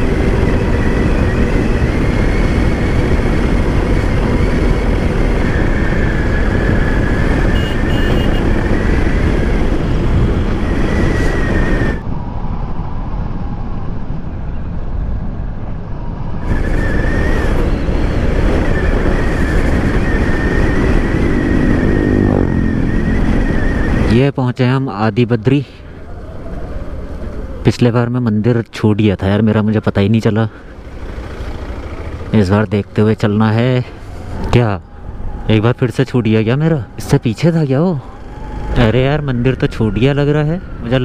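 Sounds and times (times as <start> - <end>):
wind rushing over microphone: 0.0 - 41.0
motorcycle engine running: 30.7 - 32.4.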